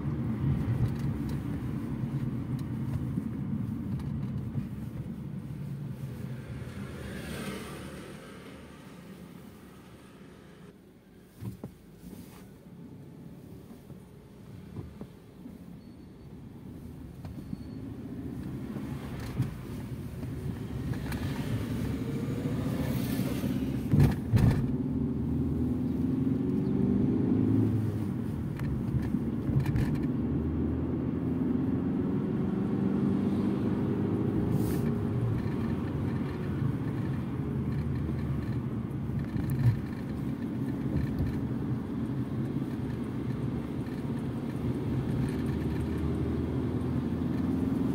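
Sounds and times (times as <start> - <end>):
road and tyre noise: 0.0 - 47.9
car engine accelerating: 18.2 - 47.9.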